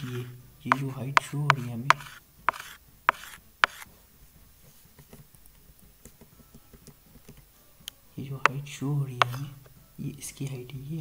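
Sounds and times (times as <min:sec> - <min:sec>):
stylus tapping on tablet: 0:00.0 - 0:03.8, 0:09.2 - 0:09.4
pen scratching on tablet: 0:00.0 - 0:03.9.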